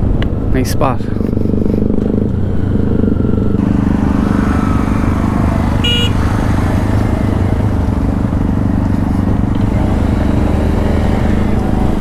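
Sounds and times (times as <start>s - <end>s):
motorcycle engine running: 1.1s - 12.0s
short high horn beep: 5.8s - 6.2s.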